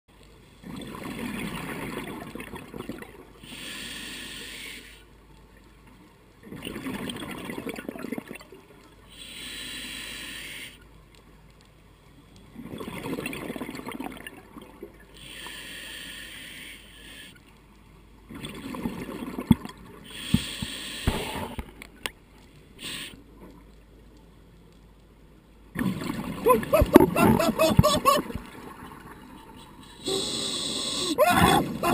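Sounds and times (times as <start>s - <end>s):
regulator hissing inhale: 3.4s - 5.1s, 9.1s - 10.8s, 15.2s - 17.4s, 20.0s - 21.6s, 22.7s - 23.2s, 29.8s - 31.2s.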